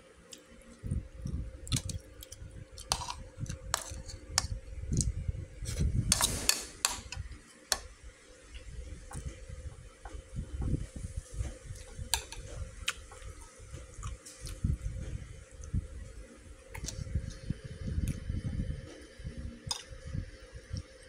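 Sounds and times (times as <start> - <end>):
metal spoon scraping plastic bowl: 6.1 - 7.2.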